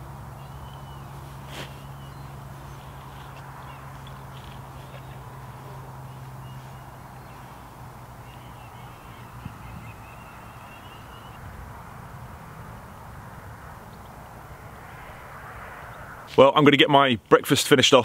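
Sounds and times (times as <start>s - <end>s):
birds calling: 0.0s - 11.4s
steady low hum: 0.0s - 16.4s.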